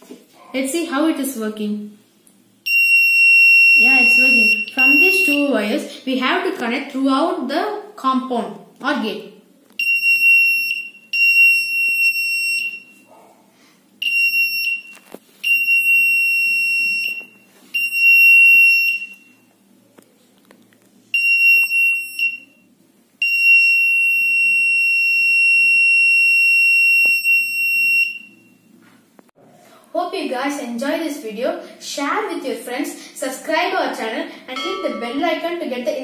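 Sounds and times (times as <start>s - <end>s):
shrill electronic buzzer tone: 2.6s - 5.5s, 9.8s - 13.1s, 14.0s - 19.5s, 21.2s - 28.7s.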